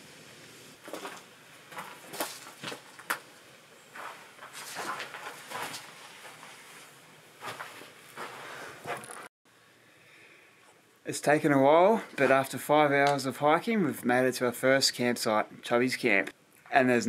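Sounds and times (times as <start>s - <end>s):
footsteps crunching through leaves: 3.9s - 8.5s.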